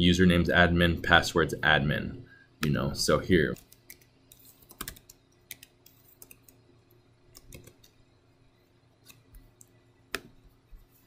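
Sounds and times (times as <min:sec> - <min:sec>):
faint steady hum: 0:00.0 - 0:11.0
keyboard keystrokes: 0:03.6 - 0:06.6, 0:07.4 - 0:08.0.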